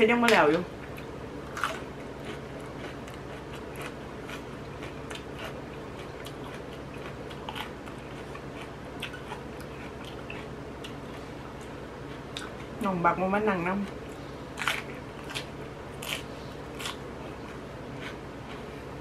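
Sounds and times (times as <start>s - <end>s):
steady low hum: 0.0s - 19.0s
person chewing crunchy food: 0.8s - 12.8s, 14.0s - 19.0s.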